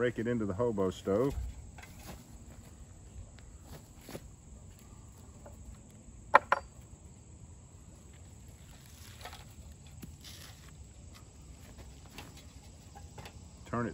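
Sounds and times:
sharp knocks: 6.3 - 6.7.

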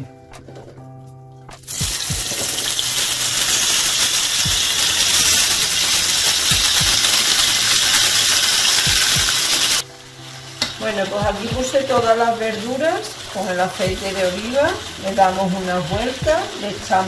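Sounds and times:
vegetables sizzling in hot oil: 1.6 - 17.0
soft low thumps: 1.8 - 2.3, 11.2 - 11.8, 15.9 - 16.4.

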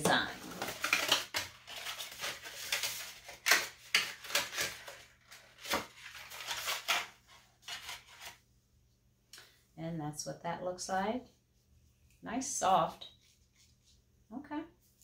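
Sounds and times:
packaging clicks and rustles: 0.1 - 8.3.

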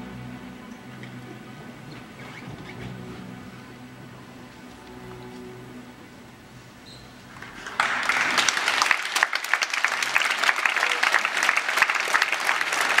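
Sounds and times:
large crowd applauding: 7.4 - 13.0.

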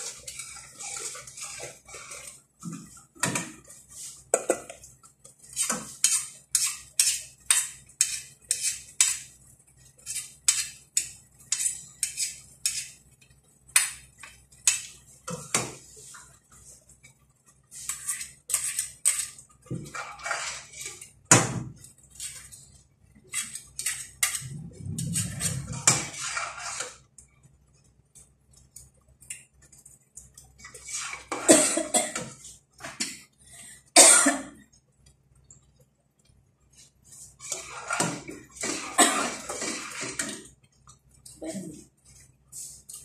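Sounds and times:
utensils scraping and clinking in pot: 0.0 - 13.1, 17.7 - 21.2, 21.8 - 27.1, 30.6 - 33.2, 36.8 - 40.9.

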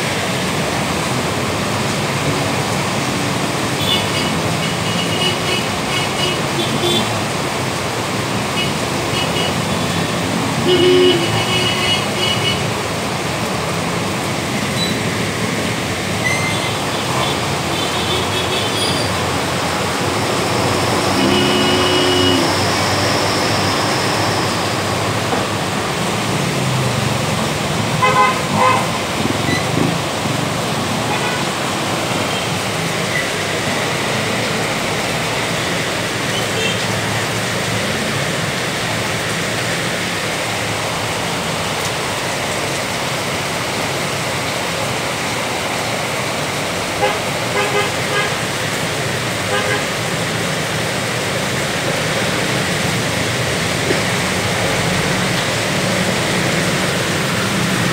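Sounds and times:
road traffic noise: 0.0 - 57.9
vehicle horn: 21.1 - 22.6, 28.0 - 28.9, 47.0 - 48.4, 49.5 - 49.8.

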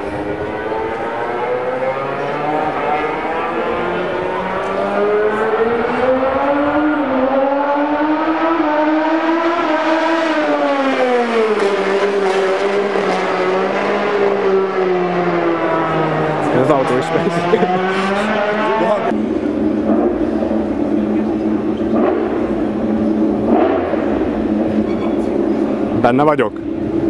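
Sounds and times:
vehicle engines passing: 0.0 - 27.0.

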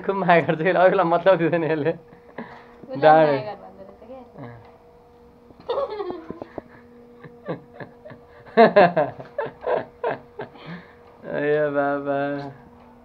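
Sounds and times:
woman laughing: 5.6 - 10.8.

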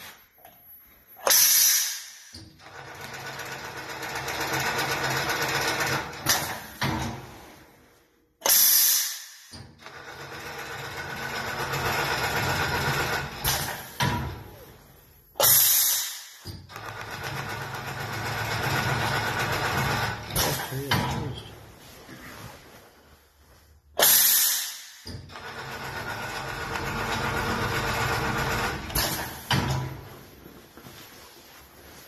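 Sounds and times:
pneumatic air hisses: 1.2 - 2.4, 8.4 - 9.6, 15.4 - 16.6, 24.0 - 25.2.

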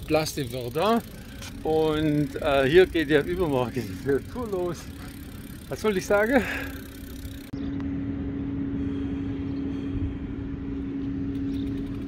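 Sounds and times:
motor hum: 0.0 - 12.0
low rumble: 7.5 - 12.0.

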